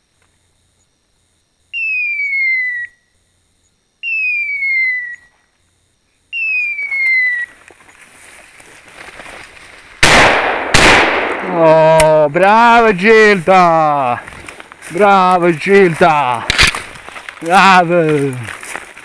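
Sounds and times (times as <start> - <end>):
rustle: 3.2 - 12.2, 13.0 - 19.0
shotgun shot: 10.0 - 12.1.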